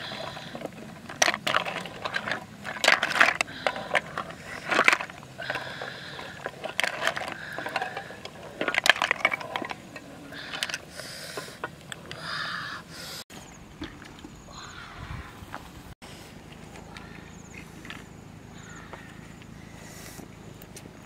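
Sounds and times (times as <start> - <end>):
snail shells clattering: 0.0 - 12.2.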